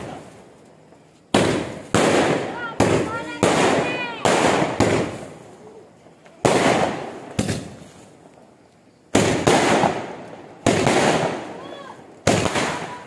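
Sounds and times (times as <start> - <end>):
firework bangs echoing: 1.3 - 5.6, 6.3 - 8.3, 9.1 - 13.0
small firecracker pop: 7.4 - 7.8.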